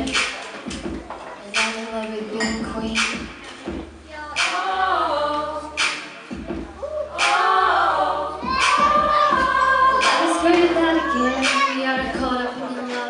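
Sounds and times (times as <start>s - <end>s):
a cappella group singing: 4.1s - 13.0s.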